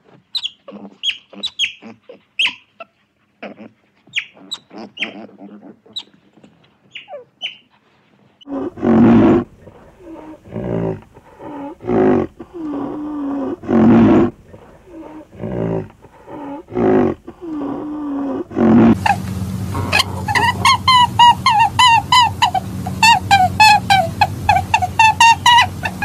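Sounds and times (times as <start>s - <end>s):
animal calling loudly: 0.4s - 2.7s, 4.1s - 6.2s, 10.0s - 26.0s
quieter call dipping in pitch: 19.0s - 26.0s.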